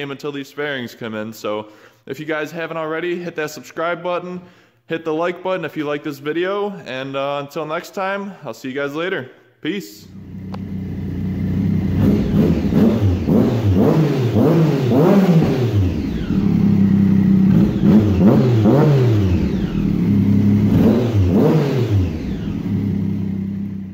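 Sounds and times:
motorcycle engine revving: 0:10.1 - 0:23.9.

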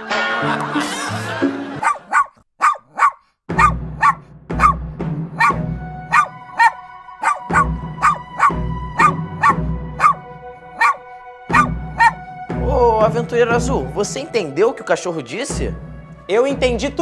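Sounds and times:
dog barking: 0:01.8 - 0:12.2.

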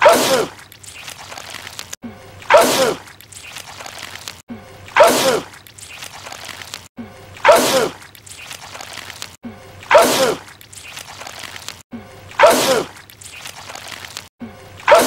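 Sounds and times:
man sneezing wetly: 0:00.0 - 0:00.5, 0:02.5 - 0:03.0, 0:05.0 - 0:05.5, 0:07.4 - 0:08.0, 0:09.9 - 0:10.4, 0:12.4 - 0:12.9.

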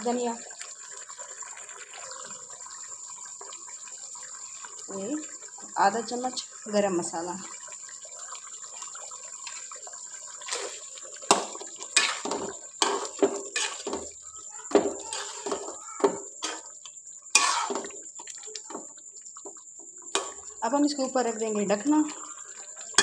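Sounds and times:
gravy simmering in a pot: 0:00.0 - 0:23.0
metal spoon stirring in a pot: 0:10.4 - 0:20.6.

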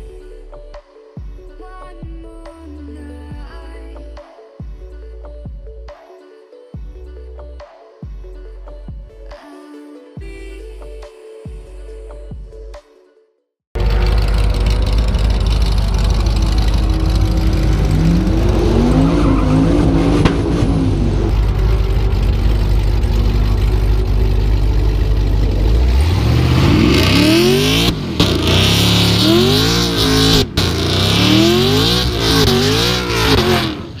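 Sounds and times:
car engine revving: 0:13.8 - 0:34.0
tires squealing: 0:13.8 - 0:34.0.

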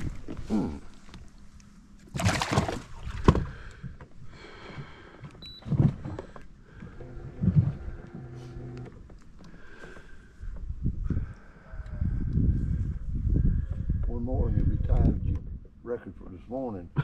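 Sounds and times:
knocks in a boat: 0:02.6 - 0:04.0.

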